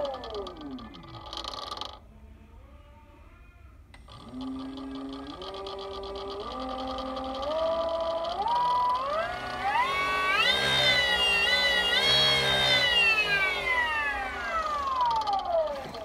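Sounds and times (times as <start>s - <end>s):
electric motor whine: 0.0s - 2.0s, 4.0s - 16.0s
click: 3.9s - 9.2s.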